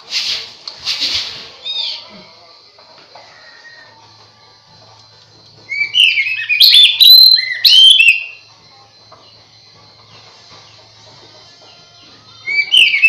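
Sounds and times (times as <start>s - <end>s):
bird singing whistled notes: 5.7s - 8.4s, 12.3s - 13.0s.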